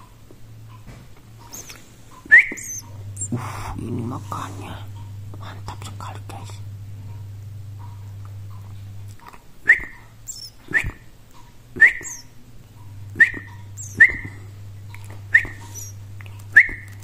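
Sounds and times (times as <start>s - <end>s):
low steady hum: 0.0s - 17.0s
bird nestling begging chirps: 1.4s - 3.4s, 9.7s - 10.8s, 11.8s - 12.3s, 13.1s - 14.4s, 15.3s - 16.0s.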